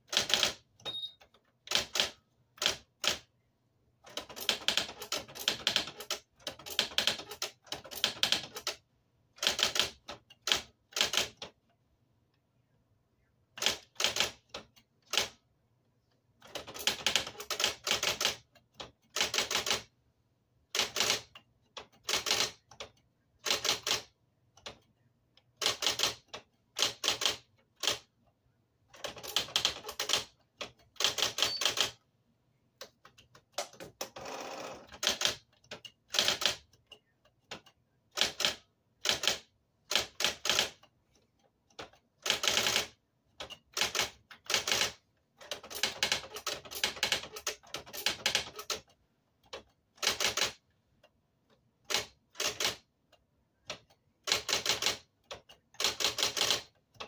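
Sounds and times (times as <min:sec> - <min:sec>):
electric typewriter key strikes: 0:29.0 - 0:32.0.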